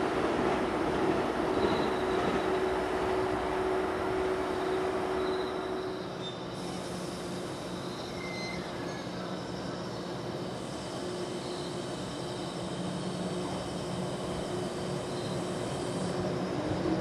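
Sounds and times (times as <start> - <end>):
electric train rumble and whine: 0.0 - 17.0.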